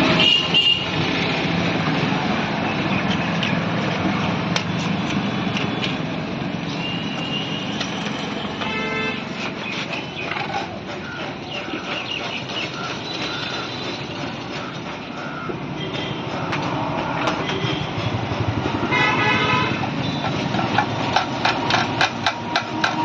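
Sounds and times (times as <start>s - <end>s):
road traffic: 0.0s - 23.0s
vehicle horn tooting: 0.1s - 1.0s, 8.5s - 9.4s, 18.9s - 19.9s
metal spreader tapping and scraping: 20.2s - 23.0s.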